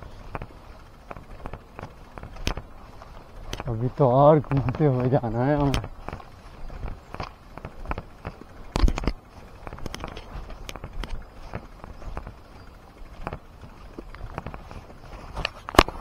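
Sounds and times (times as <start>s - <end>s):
bicycle clicks and knocks: 0.0s - 16.0s
footsteps: 0.0s - 16.0s.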